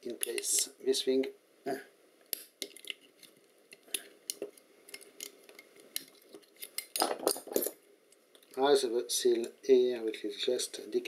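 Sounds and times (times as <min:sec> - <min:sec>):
metal tools clicking and scraping metal: 0:03.7 - 0:07.8.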